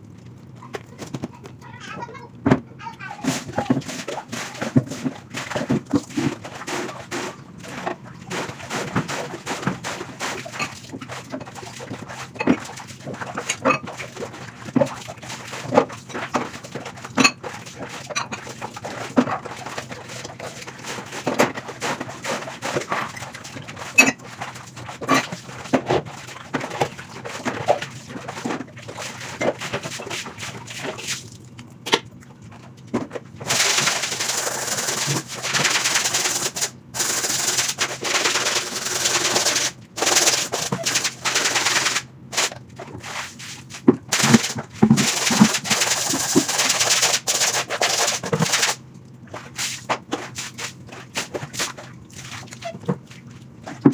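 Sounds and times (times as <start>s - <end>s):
dishes clattering in water: 0.6s - 31.1s
brush scrubbing a mat: 2.8s - 31.4s, 33.4s - 53.9s.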